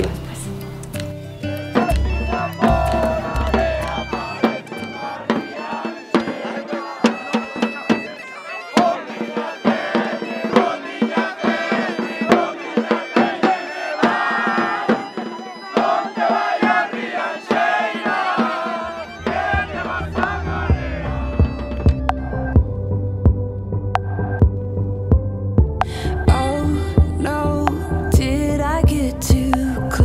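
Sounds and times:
bagpipe playing with drone: 0:00.0 - 0:23.1
drums beating: 0:00.0 - 0:30.0
people singing and shouting: 0:01.8 - 0:22.6.

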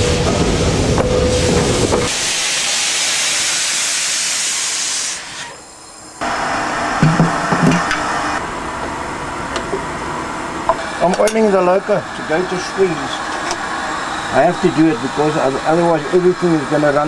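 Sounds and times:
steam locomotive hissing steam: 0:00.0 - 0:08.4, 0:10.8 - 0:17.0
steady noise with knocks: 0:07.0 - 0:08.1.

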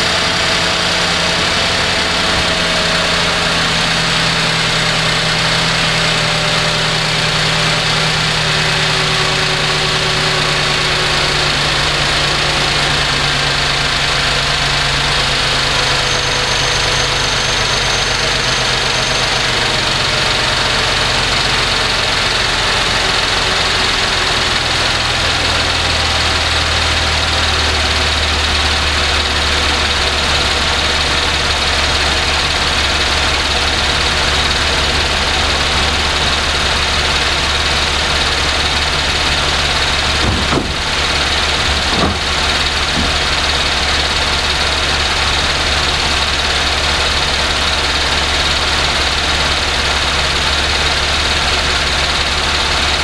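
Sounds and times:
car engine idling: 0:00.0 - 0:53.0.

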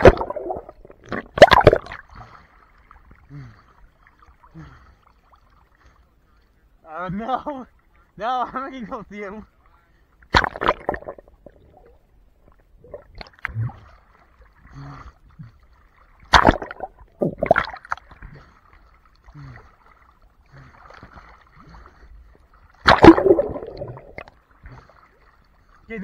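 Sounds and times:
loud splashes: 0:00.0 - 0:02.0, 0:10.3 - 0:11.2, 0:16.2 - 0:18.1, 0:22.8 - 0:24.3
muffled underwater water splashing: 0:00.0 - 0:26.0.

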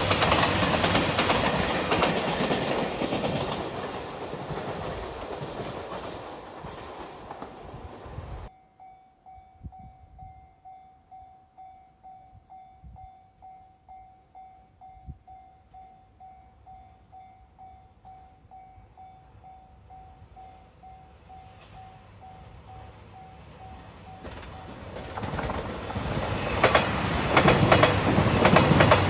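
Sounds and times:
train running by: 0:00.0 - 0:08.5, 0:11.6 - 0:29.0
level crossing warning bell: 0:08.5 - 0:24.9.

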